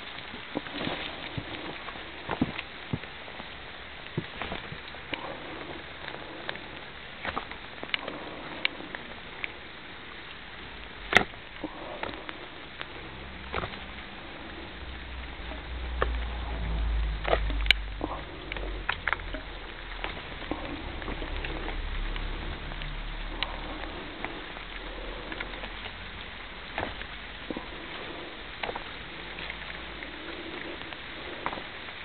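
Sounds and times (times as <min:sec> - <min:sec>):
light rain pattering: 0:00.0 - 0:32.0
low rumble: 0:00.0 - 0:32.0.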